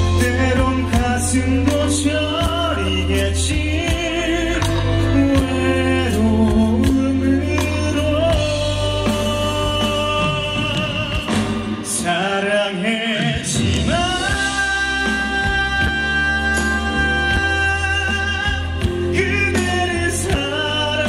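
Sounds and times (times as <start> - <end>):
bass line: 0.0 - 12.5, 13.3 - 21.0
man singing into microphone: 0.0 - 21.0.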